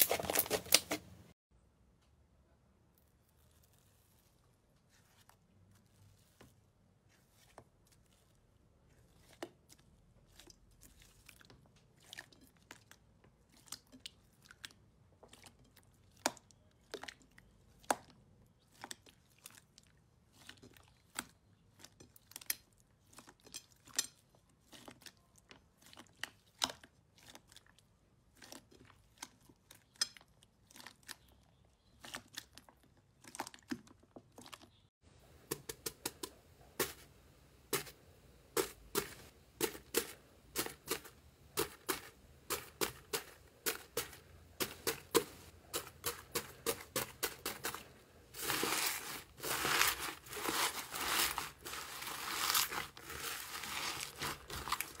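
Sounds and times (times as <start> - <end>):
slime crackling and popping: 48.4 - 55.0.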